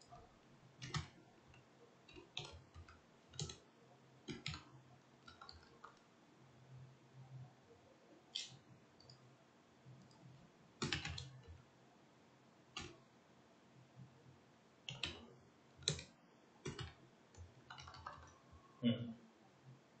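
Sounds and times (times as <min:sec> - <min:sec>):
computer mouse clicks: 0:00.8 - 0:03.6, 0:04.3 - 0:06.1, 0:08.3 - 0:09.2, 0:12.8 - 0:13.0, 0:14.9 - 0:18.4.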